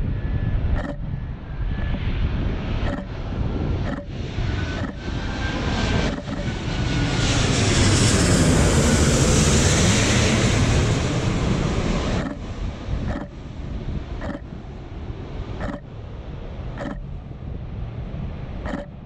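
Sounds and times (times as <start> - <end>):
jet airliner passing overhead: 0.0 - 19.0.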